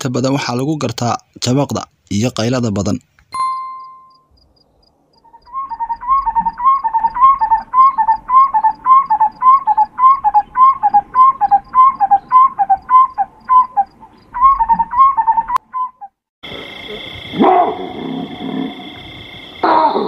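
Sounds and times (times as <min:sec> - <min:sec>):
animal whistled call: 0:05.2 - 0:16.1.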